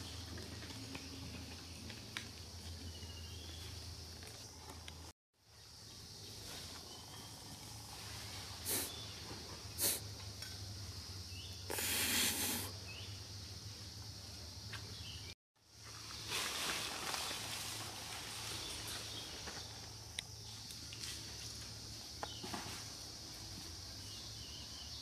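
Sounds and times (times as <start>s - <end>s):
high insect drone: 0.0s - 25.0s
monkeys rustling through leaves: 15.8s - 20.0s.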